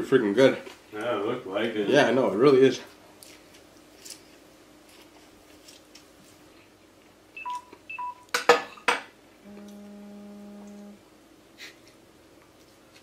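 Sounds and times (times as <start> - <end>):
short electronic beeps: 7.4 - 8.2.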